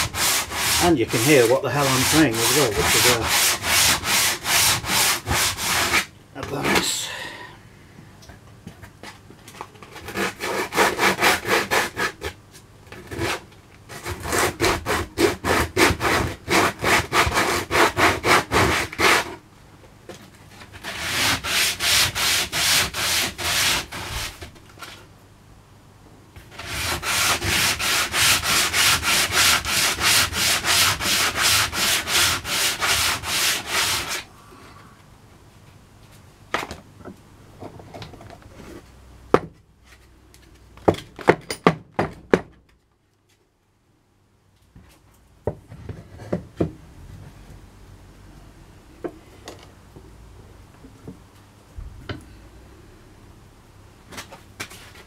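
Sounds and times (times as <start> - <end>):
sandpaper rubbing on rough wood: 0.0 - 6.9, 13.2 - 19.4, 20.8 - 24.4, 26.5 - 34.3.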